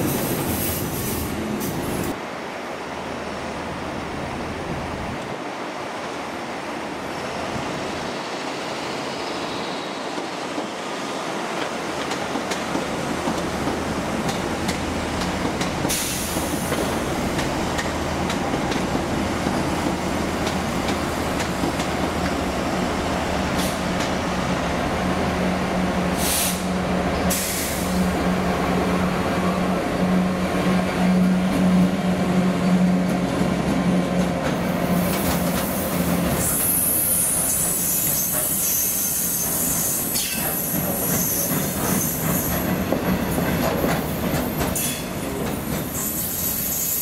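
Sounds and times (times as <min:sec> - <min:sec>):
train running: 0:00.0 - 0:47.0
wheels clicking over rail joints: 0:11.5 - 0:22.4, 0:40.1 - 0:46.0
air hisses: 0:15.9 - 0:17.0, 0:26.1 - 0:28.1.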